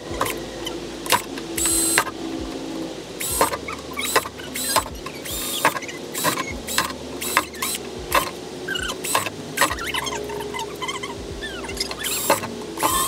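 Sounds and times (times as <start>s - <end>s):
cordless drill boring plastic: 1.1s - 2.2s, 3.2s - 10.2s, 11.8s - 13.0s.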